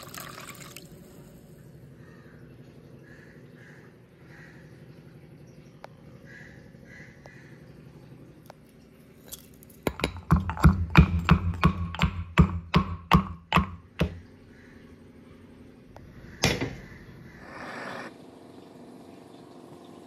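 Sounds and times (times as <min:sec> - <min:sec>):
pestle pounding in mortar: 0:09.8 - 0:14.2.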